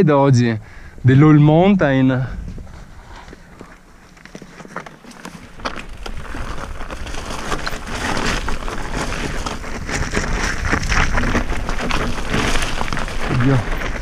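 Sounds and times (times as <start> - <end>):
wind on microphone: 0.9 - 3.4
bike tyres on rough trail: 1.9 - 14.0
bike knocking and rattling: 3.4 - 14.0.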